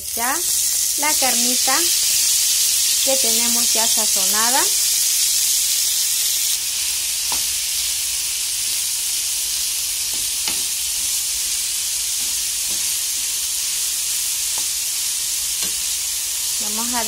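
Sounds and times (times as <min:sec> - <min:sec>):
meat sizzling in hot oil: 0:00.0 - 0:17.0
wooden spatula tapping and scraping: 0:10.1 - 0:10.7.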